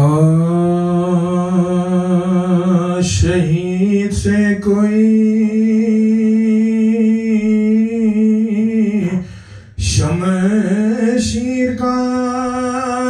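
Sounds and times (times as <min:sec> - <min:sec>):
man chanting a lament: 0:00.0 - 0:13.0
man breathing: 0:09.1 - 0:09.8.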